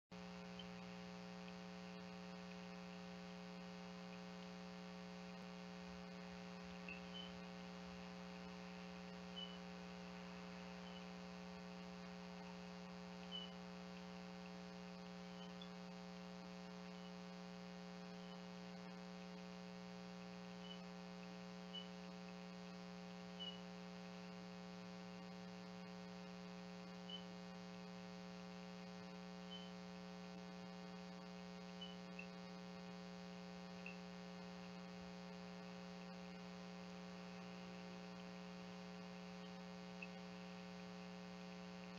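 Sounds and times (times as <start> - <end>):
electrical hum: 0.1 - 41.9
faint high chirps: 6.0 - 12.6, 13.2 - 14.2, 20.6 - 20.9, 23.3 - 23.7, 29.0 - 29.8, 31.1 - 32.6, 39.4 - 40.4.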